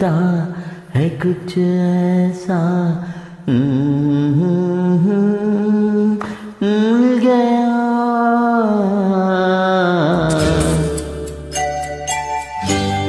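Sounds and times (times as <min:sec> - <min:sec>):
man singing slow song: 0:00.0 - 0:11.5.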